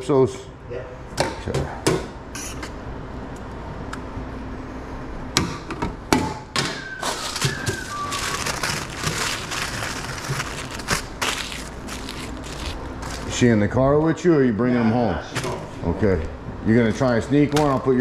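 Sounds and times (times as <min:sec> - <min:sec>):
paper rustling and crinkling: 0:07.0 - 0:13.5.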